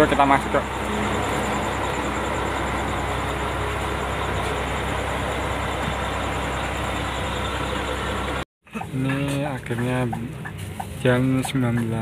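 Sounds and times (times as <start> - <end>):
bus engines idling: 0.0 - 12.0.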